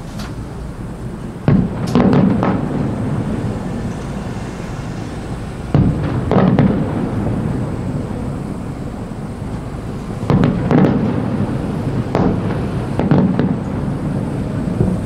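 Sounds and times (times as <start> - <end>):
firework shells bursting: 1.3 - 4.3, 5.3 - 15.0.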